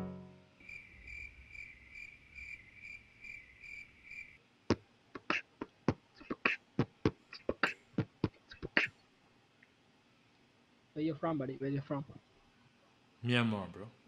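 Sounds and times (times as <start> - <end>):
cricket chirping: 0.6 - 4.4.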